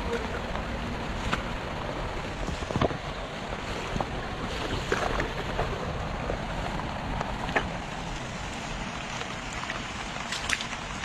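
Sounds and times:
water trickling in a ditch: 0:00.0 - 0:11.0
small water splashes: 0:00.2 - 0:11.0.

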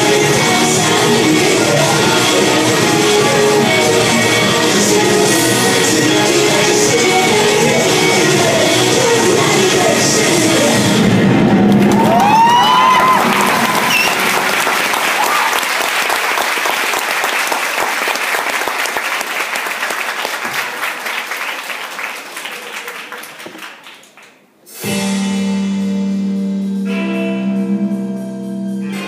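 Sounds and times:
audience applause: 0:11.6 - 0:24.5
music with sustained notes: 0:24.8 - 0:29.0.

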